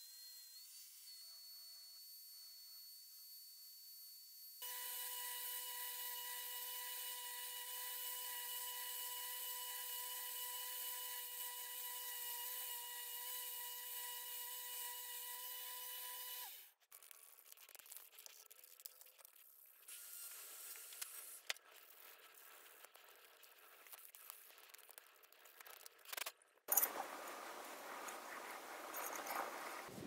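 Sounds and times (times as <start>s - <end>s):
belt grinder whining: 4.6s - 16.7s
handling rustle: 26.7s - 30.0s.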